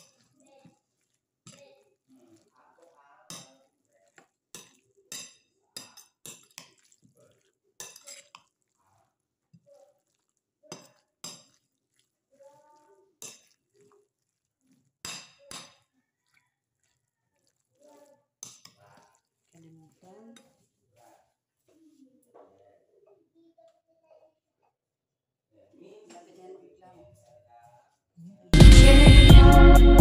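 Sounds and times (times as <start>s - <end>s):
spoon and fork scraping a bowl: 0.0s - 12.4s, 13.2s - 20.8s.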